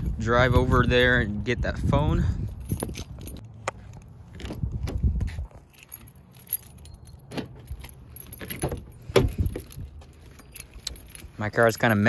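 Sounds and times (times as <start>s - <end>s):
car keys jangling: 2.2s - 12.0s
handling rustle: 2.5s - 12.0s.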